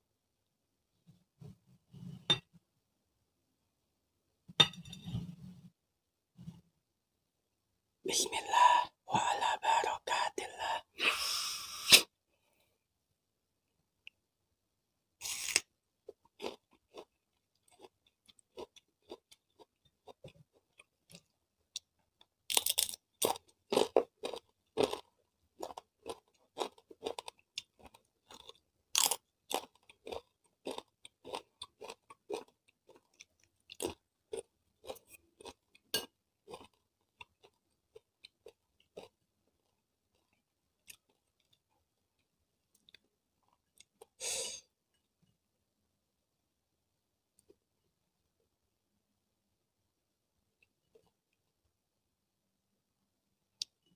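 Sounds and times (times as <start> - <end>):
chewing crunchy food: 15.5 - 44.2.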